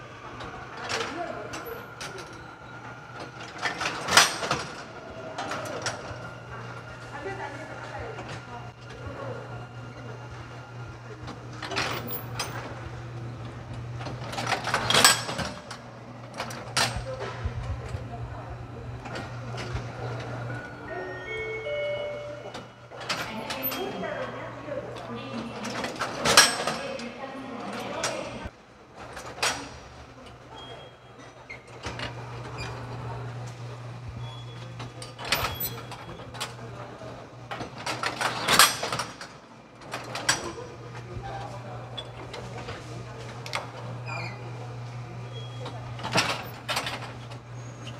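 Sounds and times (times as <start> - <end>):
machine low hum: 0.0 - 28.5.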